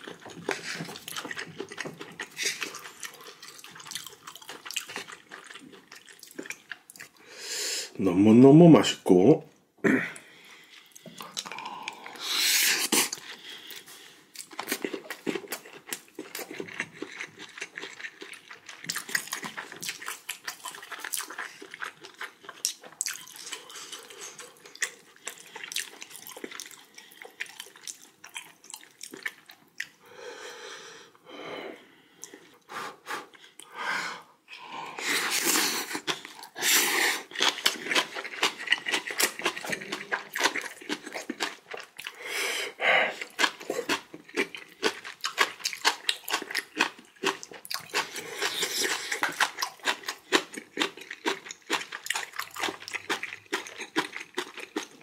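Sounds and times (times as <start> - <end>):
wet chewing and lip-smacking: 0.0 - 7.2, 10.6 - 30.0, 35.0 - 42.2, 43.1 - 55.0
person breathing: 7.2 - 8.0, 9.9 - 14.3, 30.0 - 35.9, 42.1 - 43.3.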